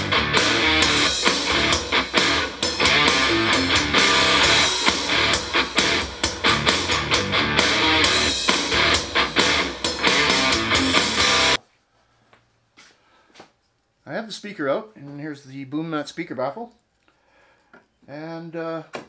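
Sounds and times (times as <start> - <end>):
rock song through speakers: 0.0 - 11.6.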